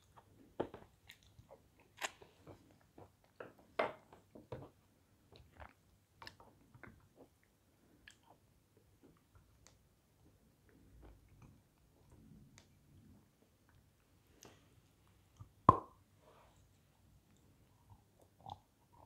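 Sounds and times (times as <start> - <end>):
person chewing sweets: 0.0 - 3.4.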